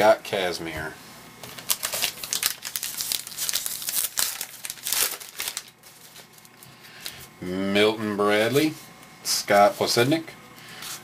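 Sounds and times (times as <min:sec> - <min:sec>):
plastic wrapper tearing and crinkling: 0:01.4 - 0:06.7.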